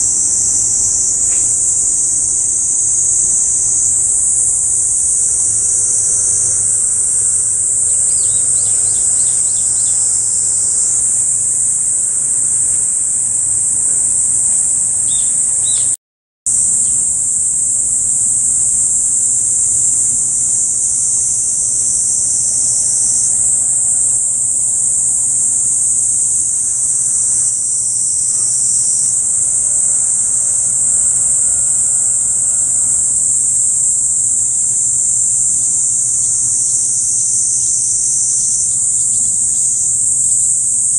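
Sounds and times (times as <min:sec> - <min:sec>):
faint bird chirps: 0:00.0 - 0:16.0
insects buzzing: 0:00.0 - 0:40.9.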